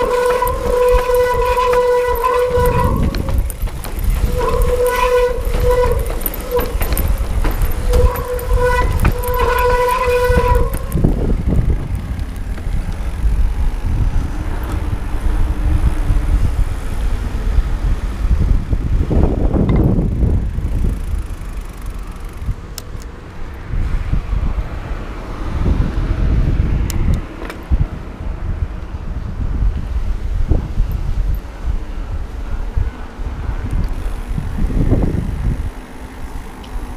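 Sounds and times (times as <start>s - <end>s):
bike disc brakes squealing: 0.0s - 11.7s
tyre noise: 0.0s - 17.5s
wind rumble on microphone: 0.0s - 36.9s.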